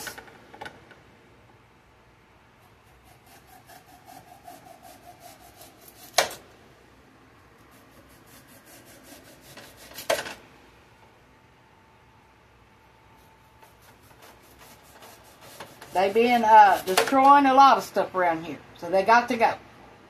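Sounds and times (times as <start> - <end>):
knife scraping onion skin: 2.6 - 6.4, 7.6 - 10.3, 13.1 - 17.2.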